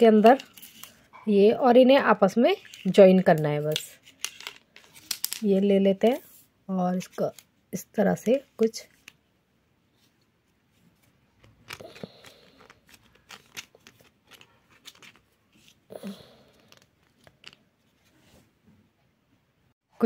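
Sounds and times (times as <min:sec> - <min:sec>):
plastic parts clicking and rattling: 0:00.1 - 0:01.0, 0:02.6 - 0:05.6, 0:11.4 - 0:15.2, 0:16.5 - 0:17.7.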